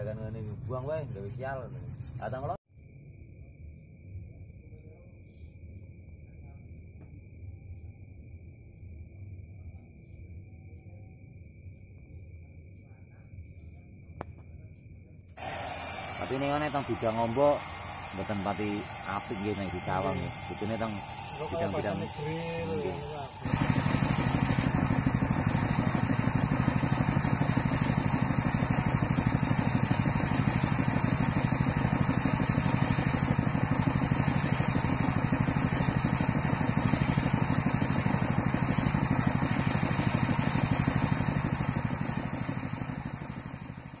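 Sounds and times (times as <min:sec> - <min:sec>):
motor running with fast pulse: 0:15.4 - 0:44.0
paint spray gun hissing: 0:15.4 - 0:44.0.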